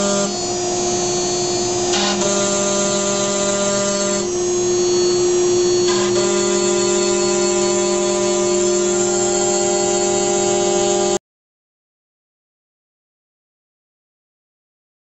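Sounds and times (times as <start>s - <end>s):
router spindle whine: 0.0s - 11.2s.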